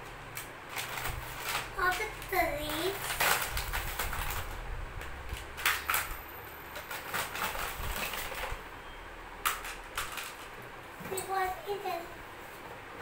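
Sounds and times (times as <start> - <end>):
plastic track pieces clattering: 0.7 - 4.6, 5.6 - 6.2, 6.8 - 8.5, 9.4 - 10.5.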